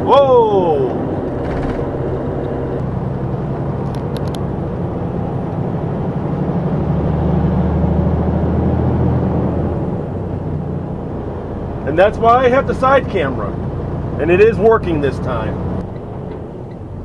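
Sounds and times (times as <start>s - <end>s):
road noise: 0.0s - 17.0s
truck engine drone: 0.0s - 17.0s.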